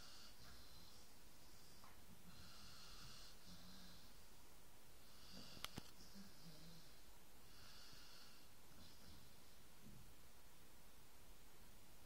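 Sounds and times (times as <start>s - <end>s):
dog snoring: 0.0s - 4.3s, 5.0s - 9.6s.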